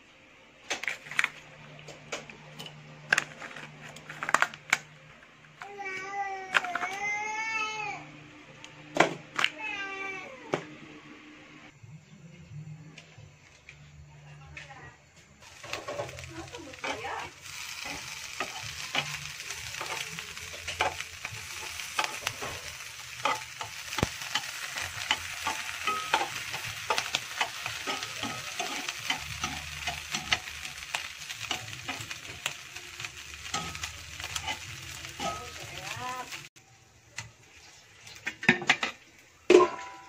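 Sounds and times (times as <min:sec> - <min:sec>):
ham sizzling in a frying pan: 0:15.4 - 0:40.0
tongs clicking and scraping pan: 0:15.6 - 0:36.4.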